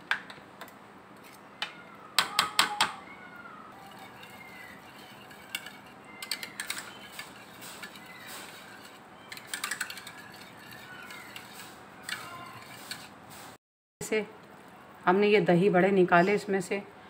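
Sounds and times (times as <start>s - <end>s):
wire whisk beating in a bowl: 3.8s - 13.1s.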